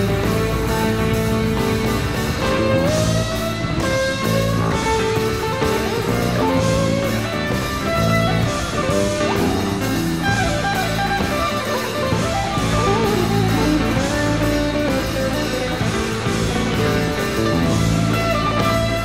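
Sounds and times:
bass and drums: 0.0 - 19.0
electric guitar solo: 0.0 - 19.0.

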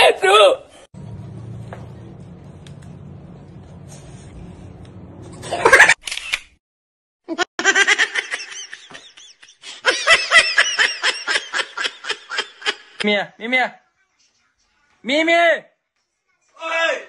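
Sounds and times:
hearty laughter: 7.6 - 13.0.

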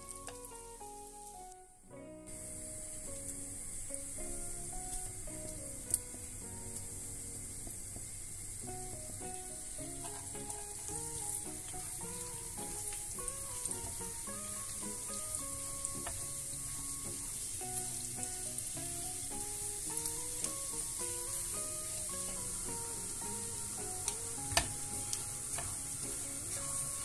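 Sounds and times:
garlic sizzling in butter: 0.0 - 1.5, 2.3 - 27.0
simple background melody: 0.0 - 27.0
spatula stirring in pan: 9.2 - 27.0.

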